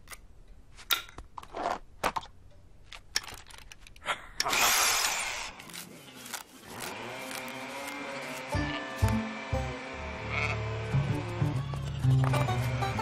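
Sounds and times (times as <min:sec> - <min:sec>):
power drill rushing burst: 0:04.5 - 0:05.6.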